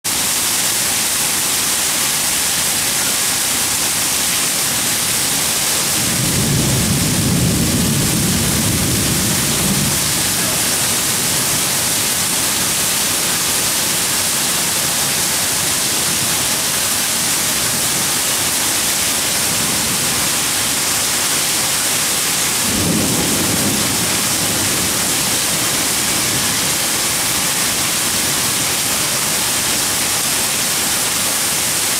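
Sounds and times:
heavy rain hissing: 0:00.1 - 0:31.9
thunder rumbling: 0:05.5 - 0:13.5, 0:22.6 - 0:28.0.

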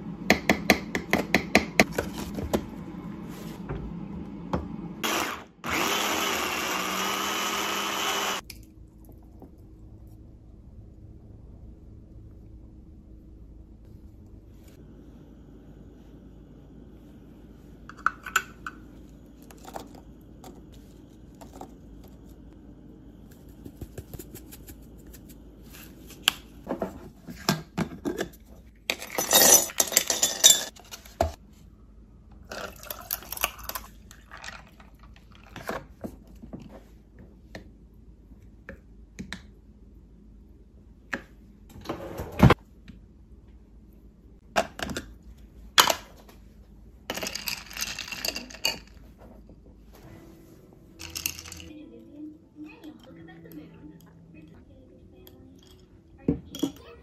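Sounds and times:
ice cubes clattering in glass jar: 0:29.0 - 0:30.7, 0:47.1 - 0:48.9, 0:51.0 - 0:51.7
coffee pouring over ice: 0:32.5 - 0:35.6.

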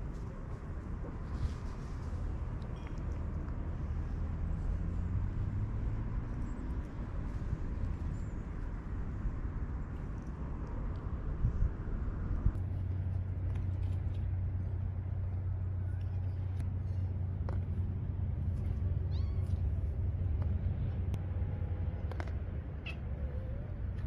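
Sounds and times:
steady low rumble: 0:00.0 - 0:24.0
kittens mewing: 0:19.1 - 0:19.8.

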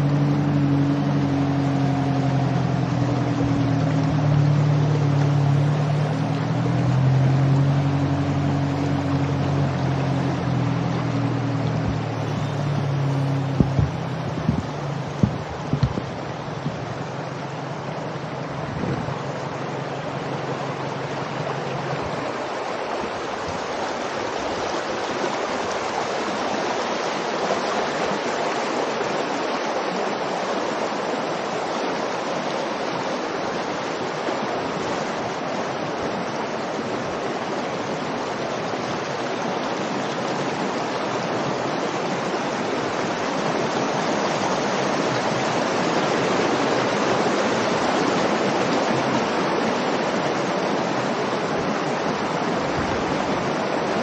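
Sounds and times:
low steady hum: 0:00.0 - 0:22.7
floodwater rushing over gravel: 0:00.0 - 0:54.0.

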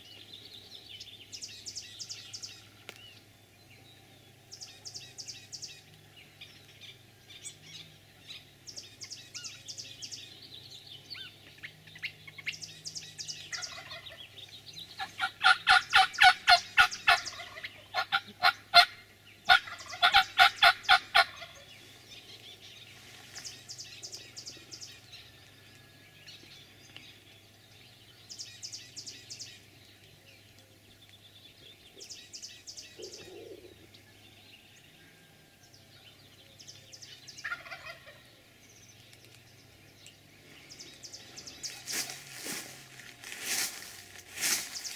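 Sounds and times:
turkey gobbling: 0:13.5 - 0:14.2, 0:15.0 - 0:21.7, 0:37.4 - 0:38.3.

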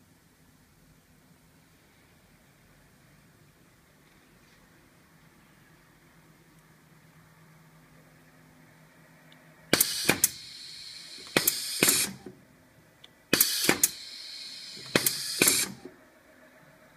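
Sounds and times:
compressed air hissing: 0:09.7 - 0:12.2, 0:13.3 - 0:15.9
pneumatic cylinder clacks: 0:09.7 - 0:12.3, 0:13.3 - 0:15.9.

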